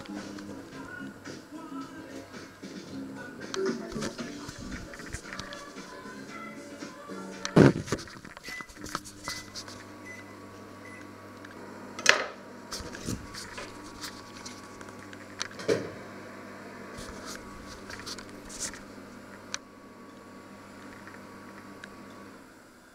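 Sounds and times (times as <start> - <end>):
kitchen appliance humming: 0.0 - 22.9.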